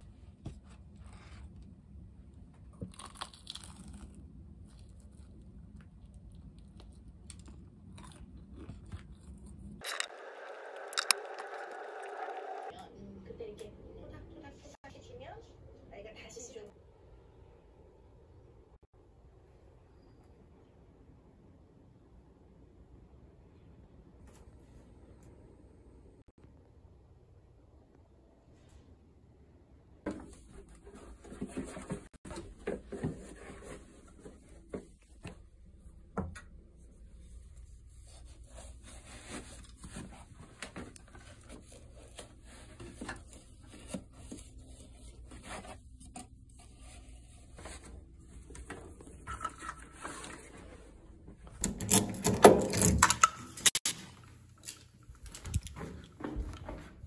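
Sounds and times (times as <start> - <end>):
rustling and scraping: 30.1 - 35.5, 36.7 - 57.0.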